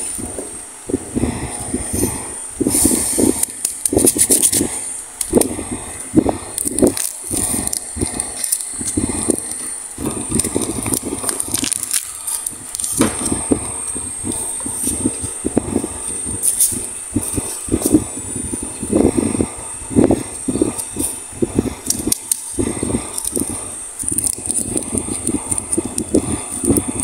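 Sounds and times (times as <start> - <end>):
plastic wrapper crinkling: 6.6 - 9.7, 10.3 - 13.3, 21.8 - 26.8.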